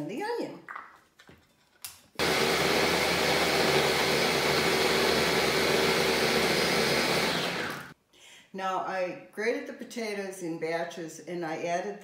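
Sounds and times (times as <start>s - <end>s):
electric blender running: 2.2s - 8.0s.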